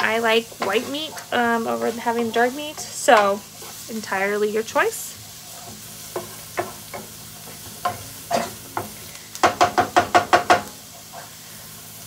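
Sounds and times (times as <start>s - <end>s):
onions sizzling in oil: 0.0s - 12.0s
spoon knocking against pan: 6.2s - 7.2s, 7.8s - 10.7s.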